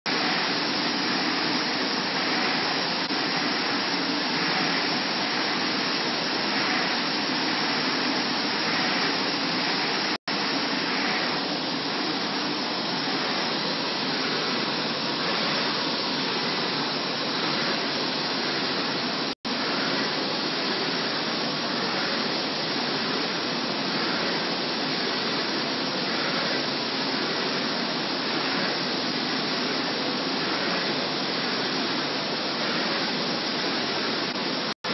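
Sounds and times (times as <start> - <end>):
printer machine whoosh: 0.1 - 34.9.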